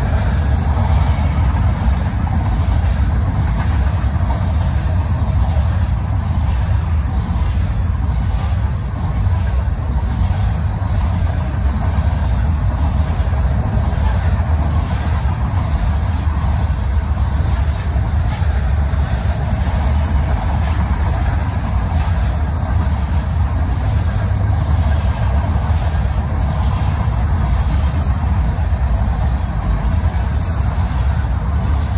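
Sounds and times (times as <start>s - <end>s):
freight train rolling past: 0.0s - 31.9s.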